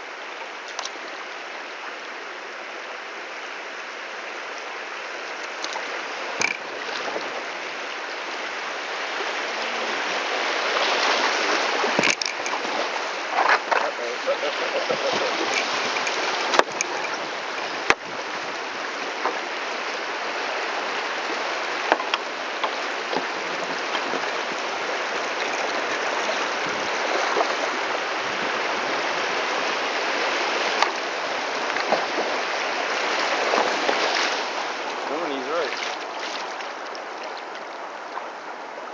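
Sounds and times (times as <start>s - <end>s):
river rapids rushing: 0.0s - 38.9s
sharp knocks on kayak: 11.9s - 12.6s, 16.5s - 16.8s, 17.8s - 18.1s, 21.9s - 23.3s.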